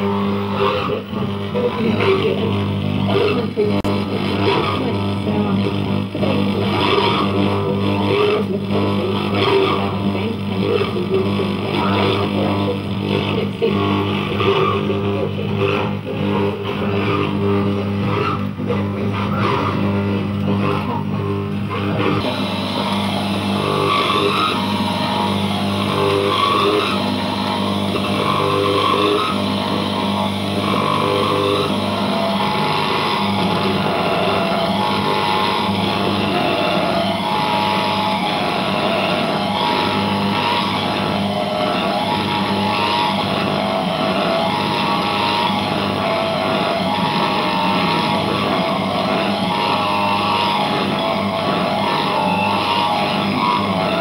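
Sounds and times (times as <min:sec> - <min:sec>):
droning buzz and hiss of interference: 0:00.0 - 0:54.0.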